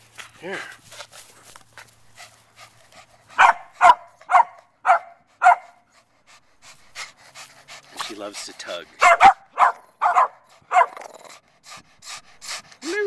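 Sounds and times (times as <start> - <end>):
small dog barking: 3.4 - 5.8, 9.0 - 11.0.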